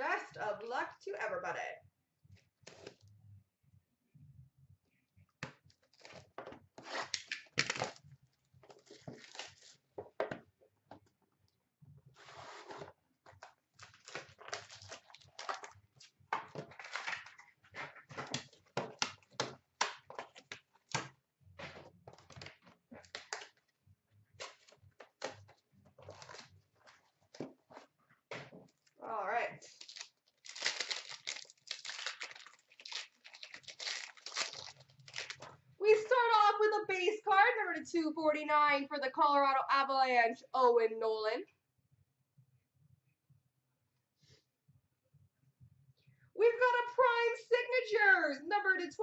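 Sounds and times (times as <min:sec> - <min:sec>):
packaging crinkling and tearing: 0:06.9 - 0:08.1, 0:08.7 - 0:09.8, 0:13.8 - 0:19.3, 0:26.0 - 0:27.1, 0:29.6 - 0:35.6.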